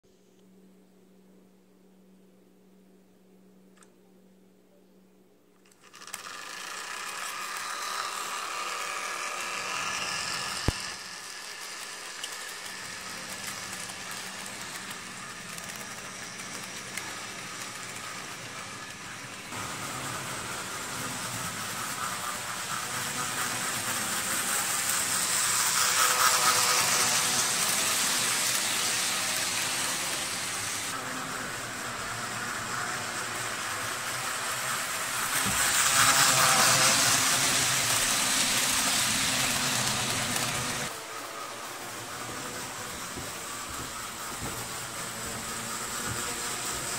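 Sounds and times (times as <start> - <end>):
model train motor whirring: 5.6 - 46.9
wheels rattling over rails: 5.7 - 46.9.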